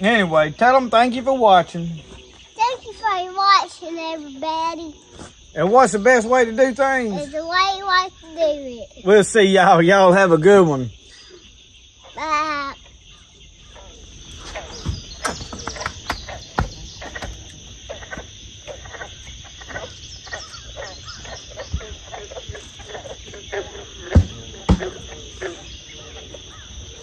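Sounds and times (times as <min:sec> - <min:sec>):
frogs clicking and croaking: 0:00.0 - 0:27.0
insects droning: 0:00.0 - 0:27.0
sharp knocks: 0:14.7 - 0:17.4, 0:24.0 - 0:25.0.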